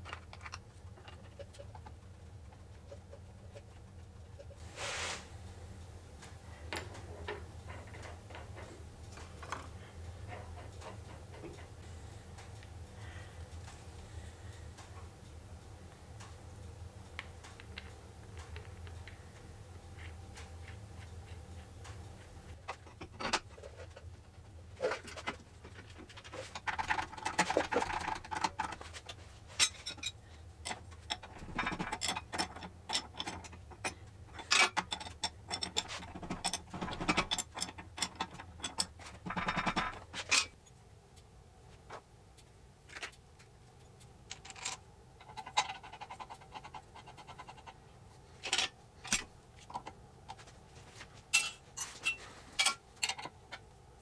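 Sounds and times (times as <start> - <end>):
metal fittings clicking and scraping: 24.8 - 40.6, 43.8 - 47.8, 51.4 - 53.7.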